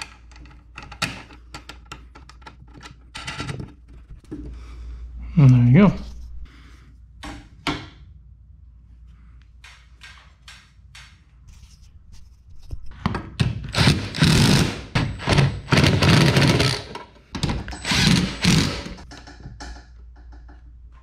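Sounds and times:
impact driver running: 13.7 - 17.0, 17.8 - 19.0.

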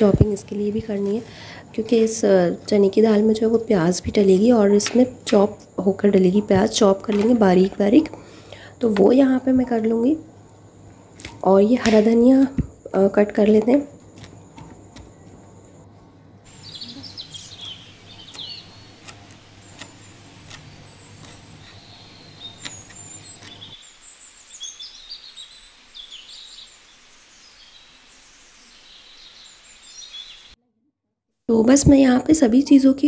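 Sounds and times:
birds chirping: 16.5 - 30.6
knife chopping on wooden board: 18.2 - 23.6.

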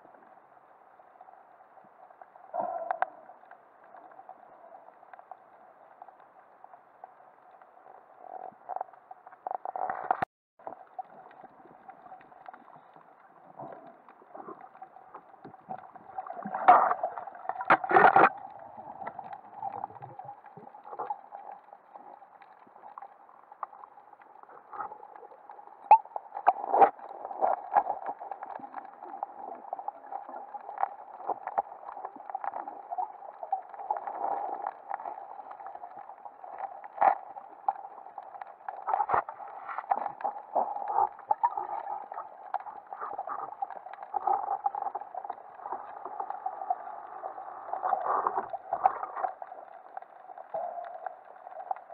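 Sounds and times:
clicks and crackles: 1.8 - 51.9.

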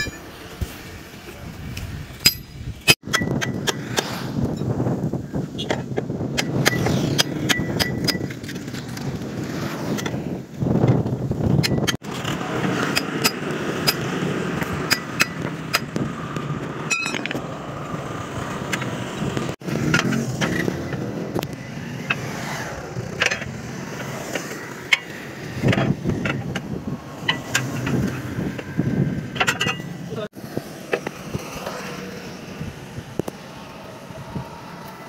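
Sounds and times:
tyre levers clinking on rim: 0.0 - 0.3, 2.1 - 3.8, 16.8 - 17.4.

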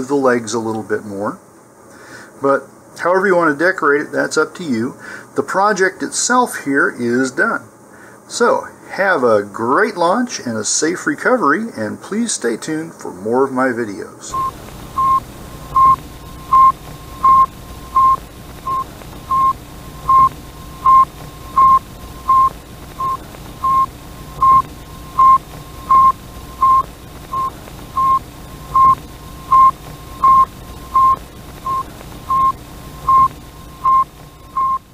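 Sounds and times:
background hiss: 0.0 - 34.9
short high beeps: 14.3 - 26.8, 27.4 - 34.9.

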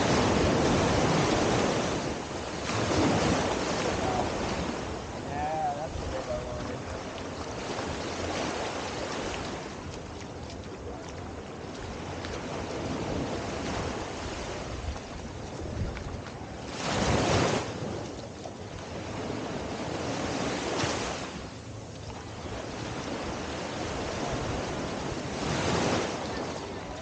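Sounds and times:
small waves breaking on sand: 0.0 - 27.0.

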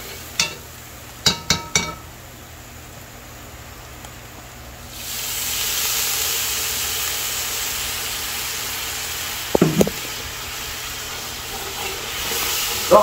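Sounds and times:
curry sizzling in pot: 0.0 - 2.2, 4.9 - 13.0.

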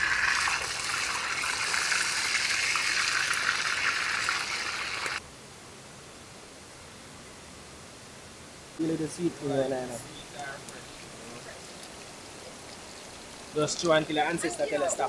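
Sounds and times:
pot boiling with bubbling hiss: 0.0 - 5.2, 8.7 - 15.0.

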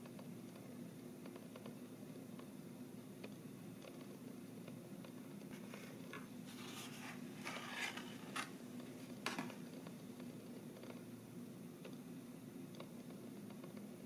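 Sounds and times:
paper rustling and scraping: 5.5 - 8.6.

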